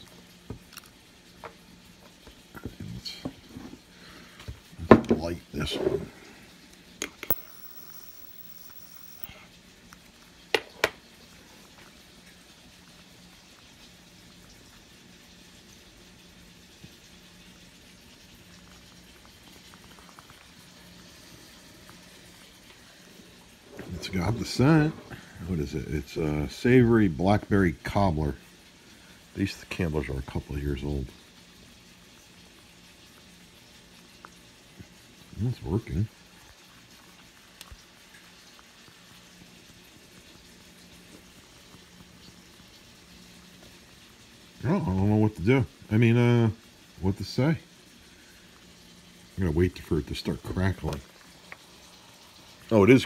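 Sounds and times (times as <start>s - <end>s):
faint low hum: 7.3s - 9.4s.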